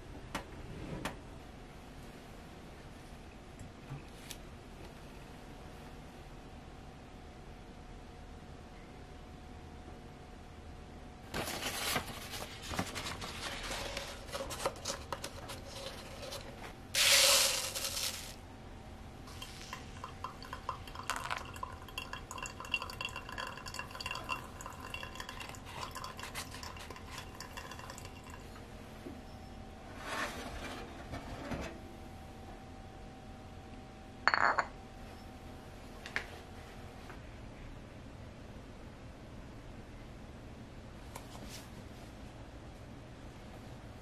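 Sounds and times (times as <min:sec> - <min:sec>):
water pouring over coffee grounds: 0:17.0 - 0:18.4, 0:19.3 - 0:28.5
faint ringing tones: 0:18.5 - 0:29.9, 0:31.6 - 0:35.6
dripping: 0:19.3 - 0:28.4.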